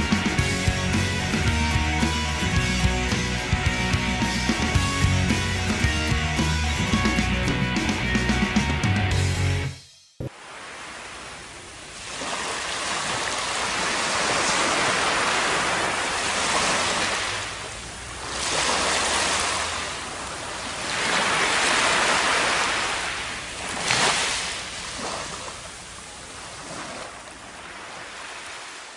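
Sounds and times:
surf washing up a beach: 0:10.3 - 0:28.9.

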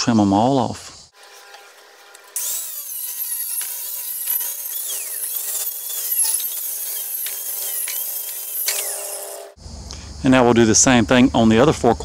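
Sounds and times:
circular saw cutting wood: 0:01.1 - 0:09.6.

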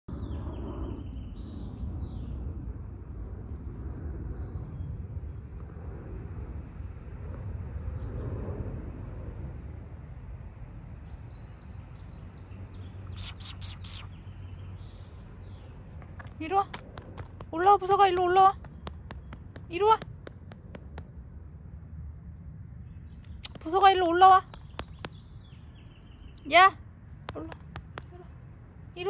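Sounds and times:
faint bird calls: 0:12.8 - 0:15.0, 0:22.9 - 0:26.7
short high chirps: 0:13.1 - 0:14.1.

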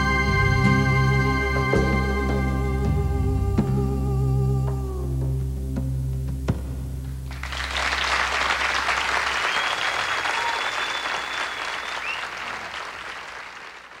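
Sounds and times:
band's low note: 0:00.0 - 0:09.3
audience applauding: 0:07.3 - 0:14.0
long steady whistle: 0:09.2 - 0:12.6.

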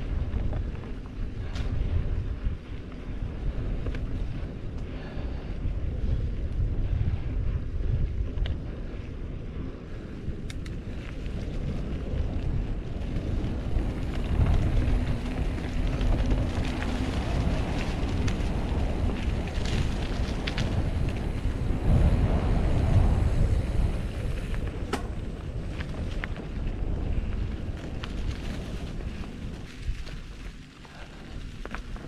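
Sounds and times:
bike clicks and rattles: 0:00.0 - 0:32.0
wind buffeting microphone: 0:00.0 - 0:32.0
tyres rumbling on dirt: 0:11.0 - 0:32.0.

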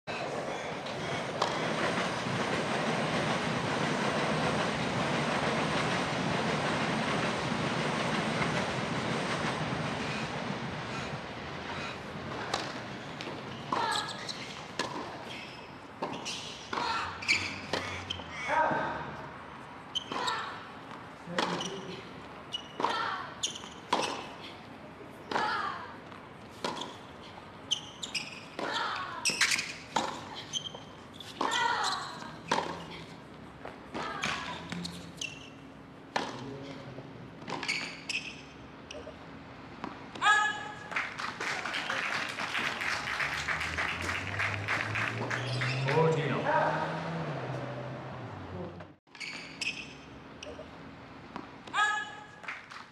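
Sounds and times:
steady rushing noise: 0:00.4 - 0:13.3
tennis shoes squeaking on court: 0:12.3 - 0:18.5, 0:19.8 - 0:24.6, 0:25.2 - 0:40.2, 0:45.2 - 0:46.1, 0:49.1 - 0:51.6.

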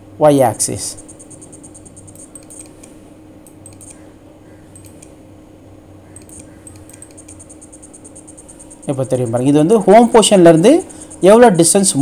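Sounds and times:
steady low hum: 0:00.0 - 0:12.0
high fast-pulsing trill: 0:00.9 - 0:02.6, 0:06.2 - 0:12.0
light clicks: 0:06.2 - 0:07.4.

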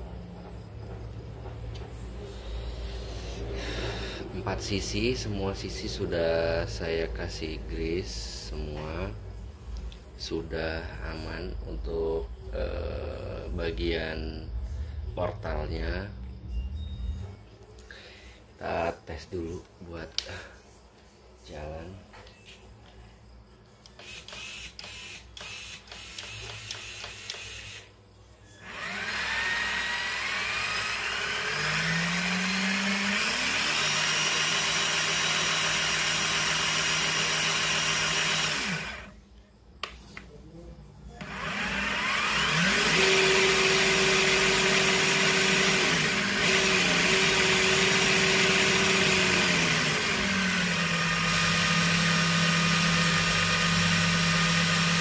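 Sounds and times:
electric motor drivetrain whine: 0:24.0 - 0:27.9, 0:28.6 - 0:39.2, 0:41.2 - 0:55.0.

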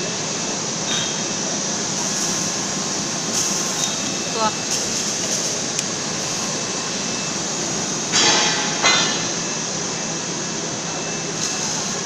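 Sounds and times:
welding machinery noise: 0:00.0 - 0:12.0
loud hissing burst: 0:01.8 - 0:08.7, 0:11.3 - 0:12.0.

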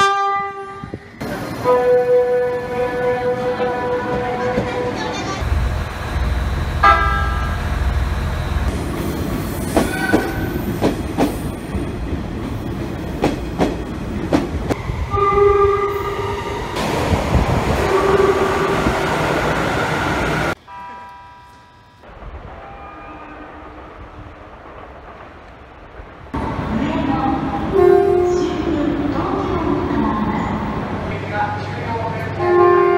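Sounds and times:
train horn blasts: 0:00.0 - 0:00.9, 0:01.6 - 0:05.0, 0:06.8 - 0:07.6, 0:15.1 - 0:16.3, 0:17.9 - 0:18.8, 0:22.6 - 0:23.8, 0:27.7 - 0:28.4, 0:32.4 - 0:32.9
train rumble: 0:00.5 - 0:21.3, 0:22.0 - 0:32.9
distant train horn: 0:01.6 - 0:05.6, 0:06.8 - 0:07.7, 0:15.1 - 0:16.4, 0:17.8 - 0:18.9, 0:22.4 - 0:24.2, 0:27.7 - 0:28.6, 0:32.4 - 0:32.9.

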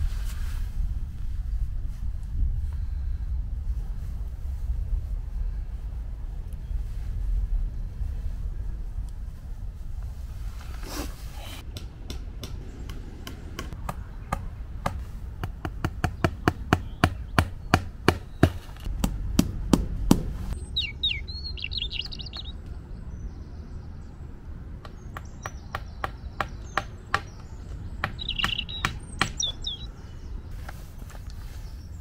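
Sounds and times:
small bird chirping: 0:20.6 - 0:24.1, 0:24.9 - 0:32.0.

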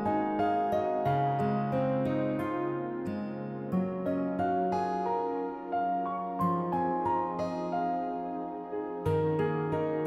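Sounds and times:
soft instrumental melody: 0:00.0 - 0:10.0.

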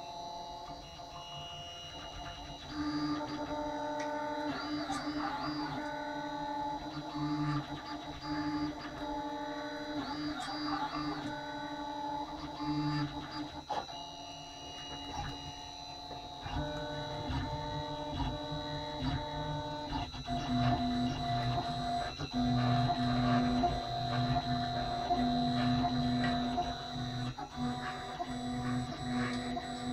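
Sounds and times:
constant high whine: 0:00.0 - 0:29.9
stepper motors whining: 0:14.4 - 0:29.9.

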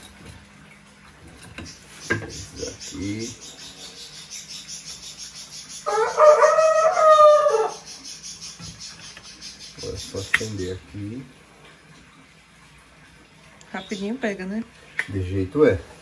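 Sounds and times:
rooster crowing: 0:05.8 - 0:07.9.

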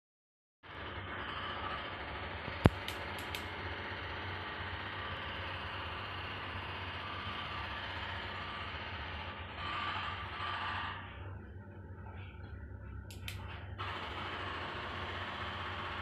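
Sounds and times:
sharp click: 0:02.6 - 0:03.5, 0:13.1 - 0:13.5.

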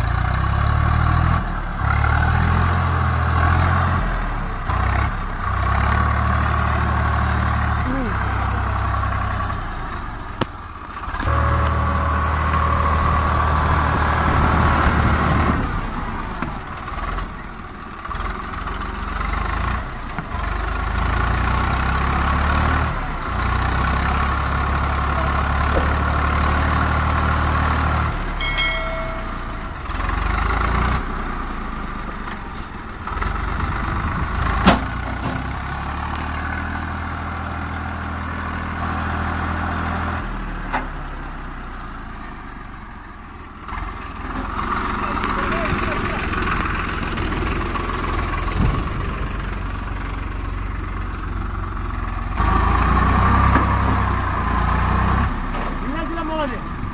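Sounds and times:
tractor diesel engine under load: 0:00.0 - 0:56.9
brief higher tone: 0:28.4 - 0:29.9.

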